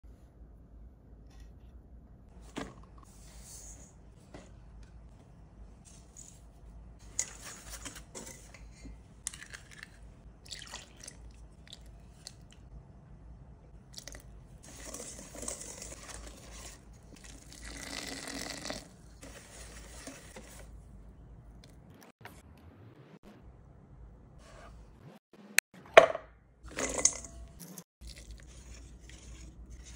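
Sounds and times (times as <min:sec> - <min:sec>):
liquid pouring into a bowl: 0:10.4 - 0:11.9.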